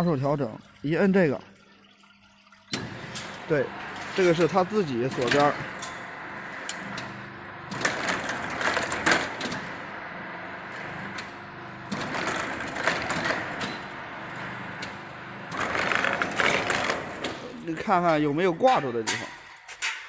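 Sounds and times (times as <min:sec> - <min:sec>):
steady motor hum: 0:02.7 - 0:19.0.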